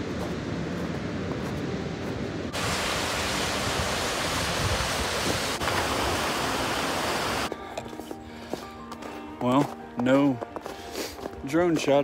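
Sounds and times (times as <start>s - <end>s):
rushing river water: 0.1s - 7.5s.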